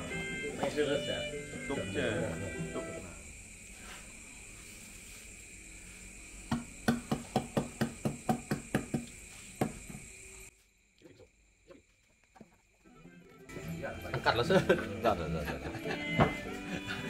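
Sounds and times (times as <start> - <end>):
night insects droning: 0.0 - 17.0
sharp knocks: 6.5 - 10.0.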